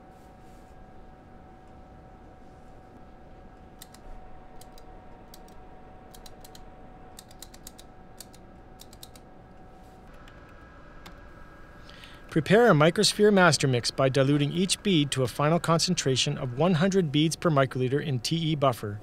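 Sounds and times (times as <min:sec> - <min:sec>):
faint steady hum: 0:00.0 - 0:19.0
tally counter clicking: 0:04.6 - 0:09.2.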